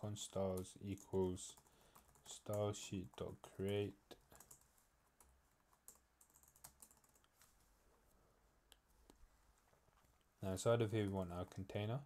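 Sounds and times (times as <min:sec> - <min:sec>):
faint keyboard keystrokes: 0:00.6 - 0:07.5.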